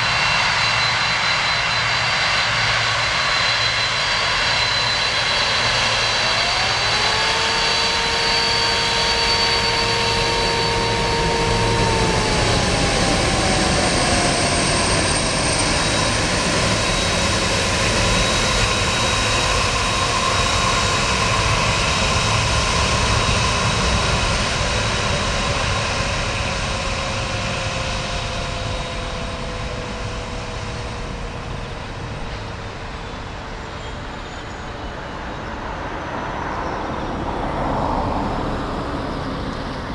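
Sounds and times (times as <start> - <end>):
jet engines taxiing: 0.0 - 39.9
warning siren wailing: 3.9 - 17.9.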